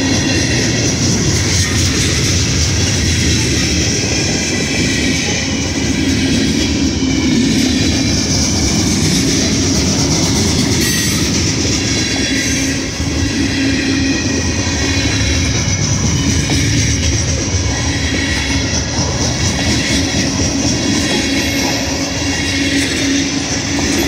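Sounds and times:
freight train wheels rumbling on rails: 0.0s - 24.0s.

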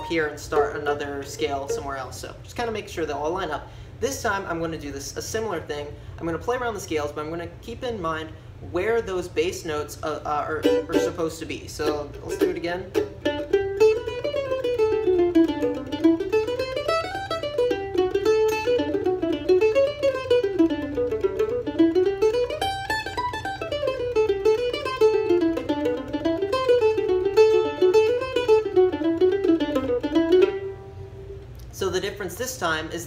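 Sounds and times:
mandolin playing: 0.0s - 2.3s, 10.1s - 31.4s.

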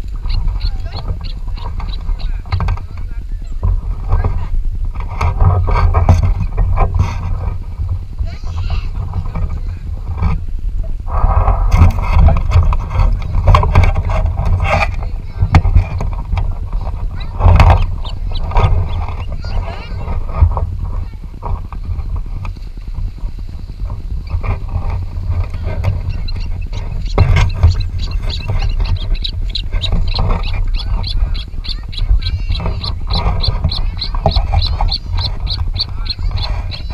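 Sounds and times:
knocks and scrapes on sticks: 0.0s - 36.9s
wind rumble on microphone: 0.0s - 36.9s
osprey high chirps: 26.0s - 36.9s.

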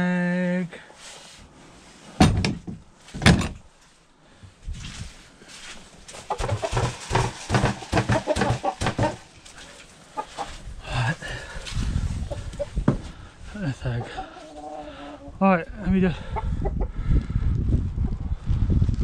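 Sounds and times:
loud knocks: 2.2s - 3.6s, 6.4s - 9.2s
hens clucking: 6.1s - 11.2s, 12.2s - 13.0s, 13.6s - 17.0s.

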